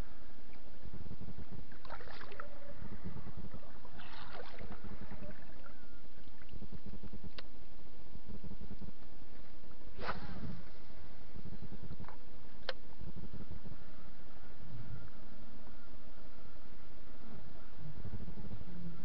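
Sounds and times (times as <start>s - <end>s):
low rumble of wind and water: 0.0s - 19.0s
lure splashing in water: 3.9s - 5.7s.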